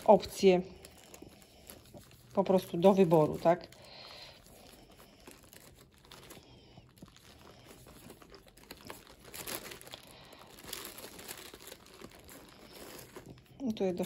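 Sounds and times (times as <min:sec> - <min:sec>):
yarn rustling with crochet hook: 0:00.0 - 0:10.0.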